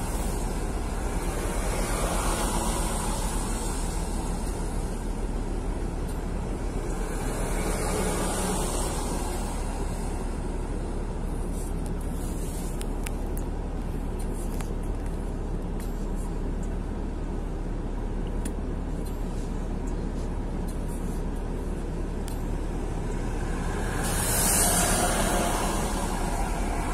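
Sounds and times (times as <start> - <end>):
truck passing close by: 0.0 - 10.9, 22.4 - 26.9
car road noise with tyre hiss: 0.0 - 26.9.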